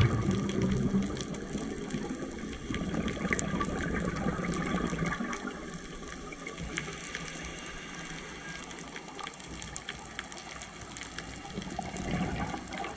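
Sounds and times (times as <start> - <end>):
scuba regulator bubbles: 0.0 - 10.2, 10.8 - 12.9
underwater water hiss: 0.0 - 12.9.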